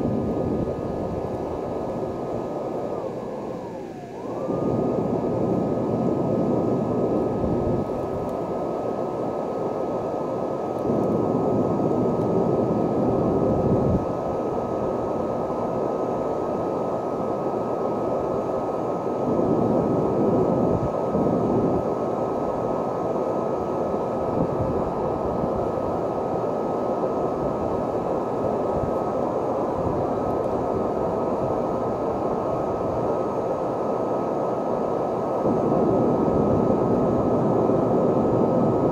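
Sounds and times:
high whine: 0:00.0 - 0:38.9
leaf blower running: 0:04.0 - 0:08.3.

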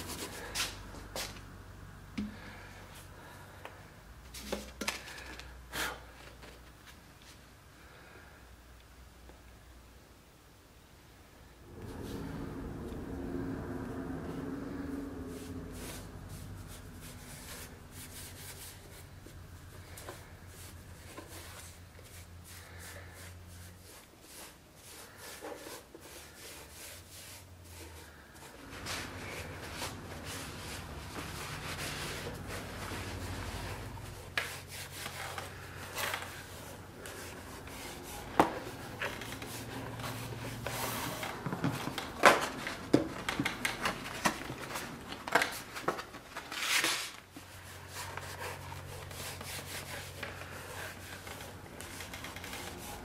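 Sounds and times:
low hum: 0:11.4 - 0:20.9.

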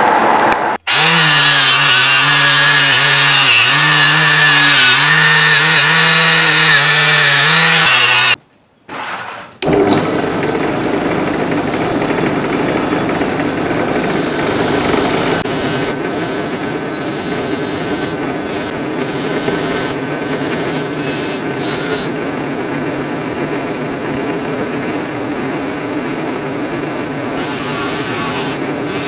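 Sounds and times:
motor hum: 0:09.6 - 0:25.3
wire wheel scratching metal: 0:14.0 - 0:22.2, 0:27.4 - 0:29.0.

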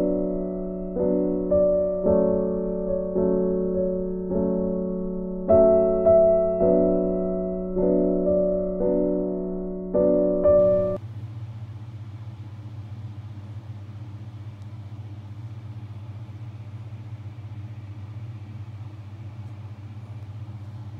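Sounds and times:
piano music: 0:00.0 - 0:11.0
low mechanical hum: 0:10.6 - 0:20.9.

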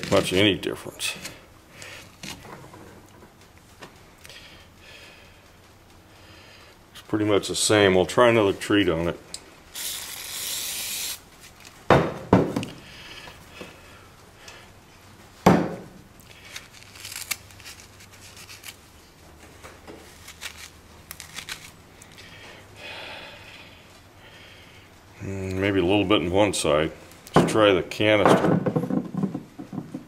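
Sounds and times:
canister rubbing: 0:09.8 - 0:11.6.

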